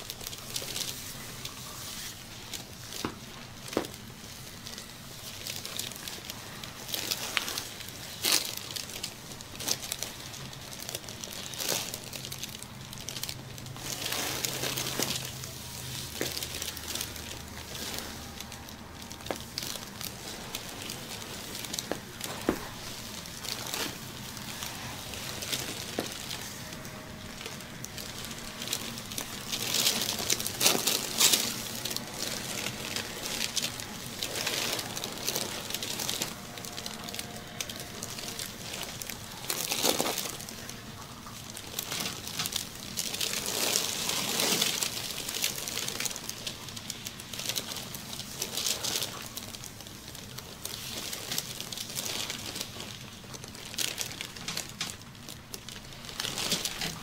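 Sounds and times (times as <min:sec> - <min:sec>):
low hum: 0:03.3 - 0:45.2.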